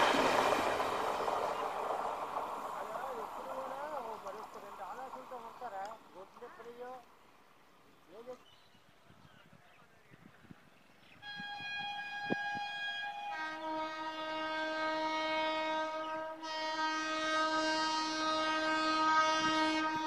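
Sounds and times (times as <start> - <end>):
train horn: 11.2 - 20.0.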